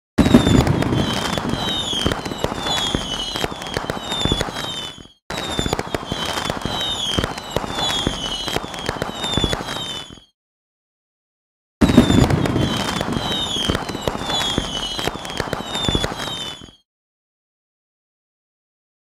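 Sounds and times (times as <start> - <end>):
falling firework whistles: 0.2 - 10.4, 11.8 - 16.9
fireworks bangs and crackles: 0.2 - 10.4, 11.8 - 16.8.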